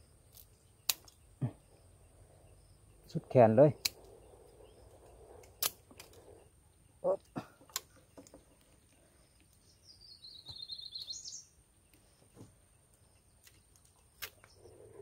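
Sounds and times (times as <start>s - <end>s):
bird chirping: 0.0s - 15.0s
pruning shears snipping twigs: 0.3s - 1.2s, 5.4s - 6.2s, 13.4s - 14.6s.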